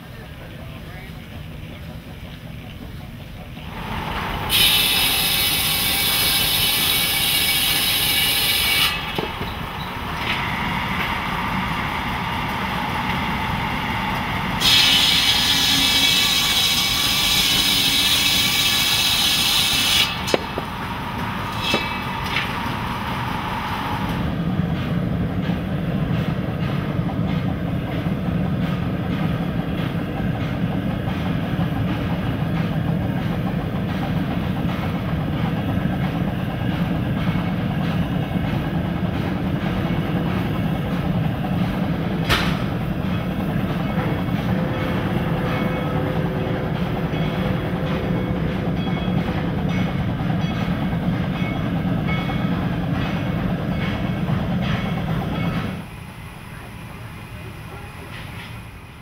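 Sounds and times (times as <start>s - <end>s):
saw blade whine: 3.7s - 24.2s
buzz saw cutting log: 14.6s - 20.4s
sharp knocks: 20.2s - 20.8s, 42.2s - 42.8s.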